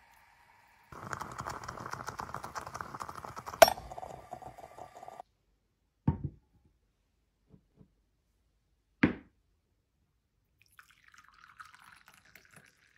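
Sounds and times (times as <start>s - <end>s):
coffee pouring into cup: 0.0s - 5.2s, 10.6s - 12.9s.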